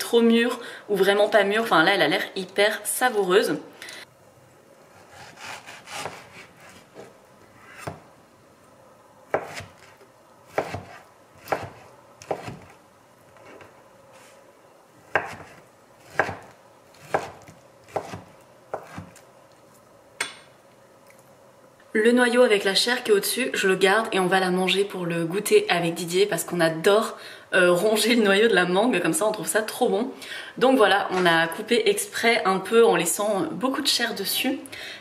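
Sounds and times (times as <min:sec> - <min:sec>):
knife slicing mango: 0:04.9 - 0:08.0.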